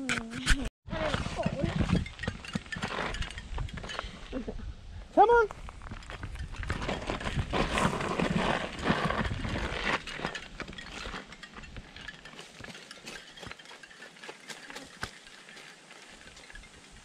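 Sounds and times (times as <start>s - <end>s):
footsteps on gravel: 5.5s - 17.0s
bike pushed on gravel rattling: 5.8s - 17.0s.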